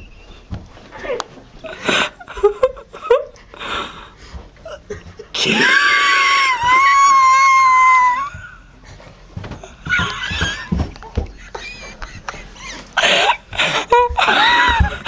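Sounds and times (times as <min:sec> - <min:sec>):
young person screaming: 0:05.4 - 0:08.6.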